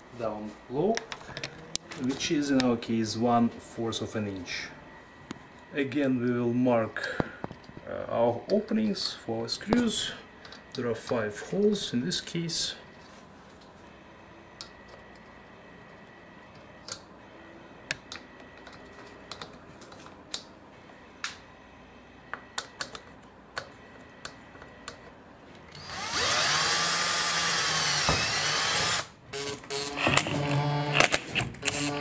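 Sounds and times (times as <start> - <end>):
power drill running: 25.7 - 32.0.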